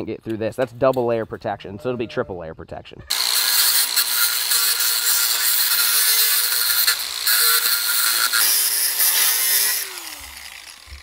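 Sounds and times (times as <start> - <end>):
angle grinder cutting wire mesh: 3.1 - 11.0.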